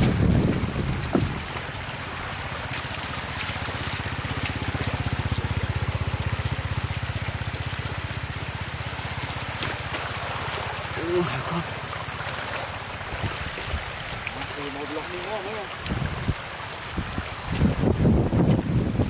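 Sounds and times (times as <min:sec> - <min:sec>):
water gushing and splashing: 0:00.0 - 0:19.0
small pump engine running: 0:01.7 - 0:13.2.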